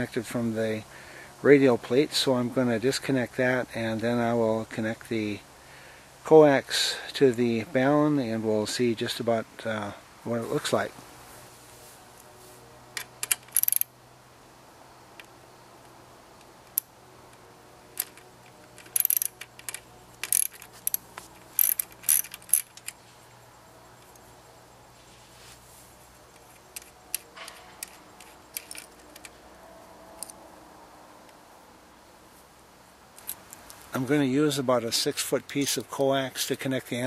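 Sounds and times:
metal hardware clicks and clinks: 13.0 - 13.9, 16.7 - 23.1, 26.3 - 29.4.

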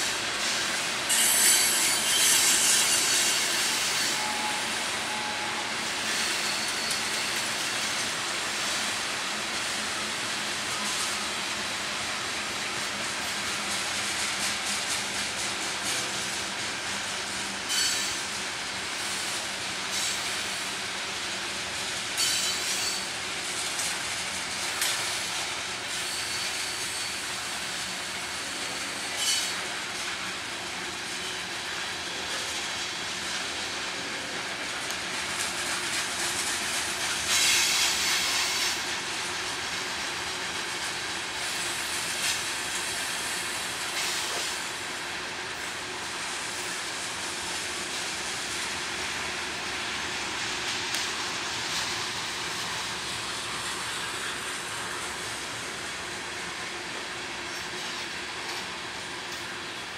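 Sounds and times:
freight cars rolling on rails: 0.0 - 59.9
high-pitched wheel squeals: 1.1 - 7.3, 17.7 - 18.2, 29.2 - 29.5.

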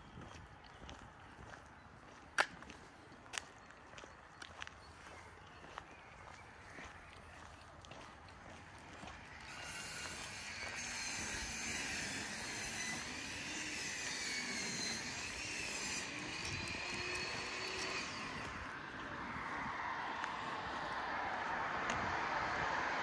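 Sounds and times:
jet aircraft passing overhead: 9.3 - 23.0.

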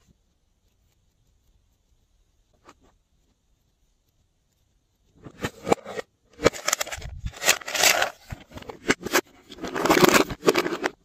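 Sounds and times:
plastic crackling and scraping: 5.1 - 11.0
plastic containers clicking and knocking: 5.2 - 11.0.

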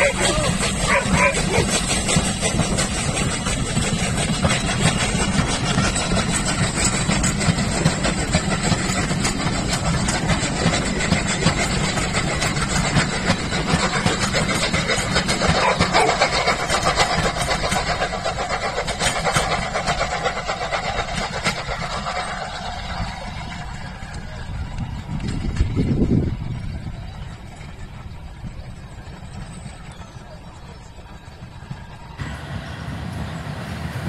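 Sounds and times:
steam locomotive rumbling past: 0.0 - 34.0
train carriages rolling by: 0.0 - 34.0.

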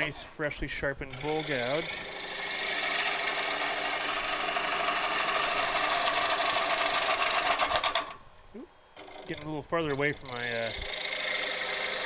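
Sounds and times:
lathe hum: 0.0 - 12.0
gouge cutting wood hissing: 1.1 - 7.9, 10.2 - 12.0.

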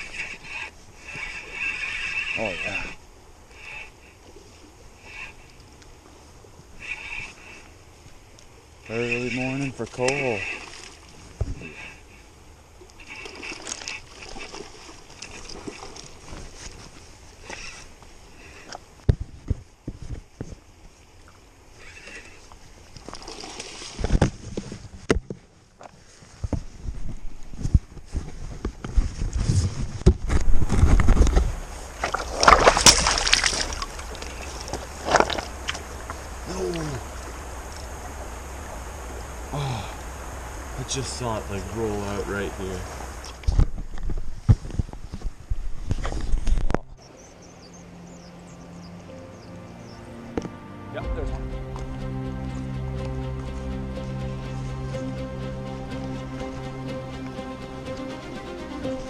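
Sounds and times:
fishing rod and reel clicking: 0.0 - 4.0, 8.3 - 10.9, 12.8 - 16.8, 17.4 - 18.0, 21.8 - 22.4
water splashing against rocks: 8.2 - 19.2, 21.2 - 25.4, 29.9 - 46.9
steady low rumble: 30.4 - 44.4, 46.9 - 59.0.

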